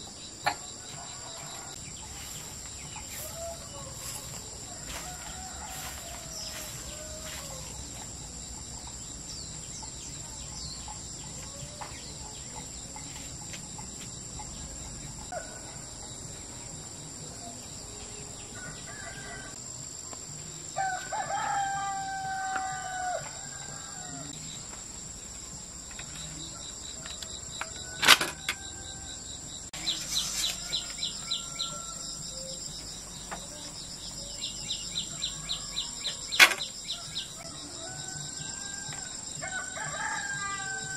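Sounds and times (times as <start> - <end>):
high-pitched insect buzz: 0.0 - 19.6, 20.7 - 40.9
rooster crowing: 0.6 - 8.2, 15.3 - 16.2, 18.4 - 19.6, 20.8 - 24.4, 26.5 - 32.7, 34.2 - 40.9.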